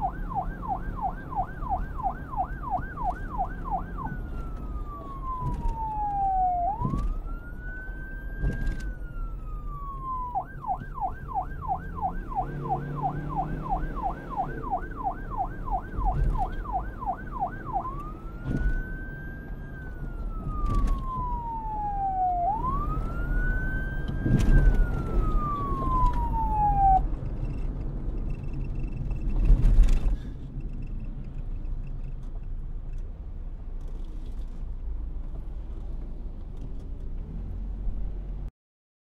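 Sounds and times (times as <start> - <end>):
emergency siren wailing: 0.0 - 27.6.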